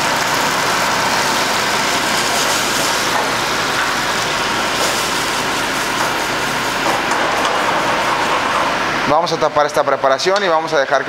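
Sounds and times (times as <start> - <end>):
shrimp sizzling in a frying pan: 0.0 - 7.0
wine being poured: 0.0 - 9.1.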